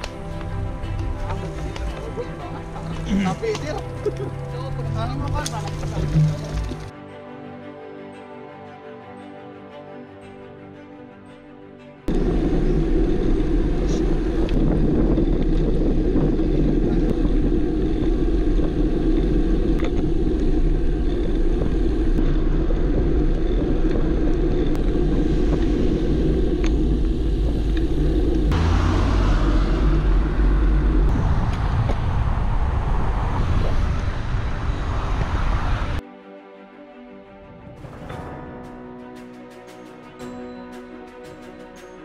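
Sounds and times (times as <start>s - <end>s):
road noise rumble: 0.0s - 6.9s, 12.1s - 36.0s
wind buffeting: 12.1s - 36.0s.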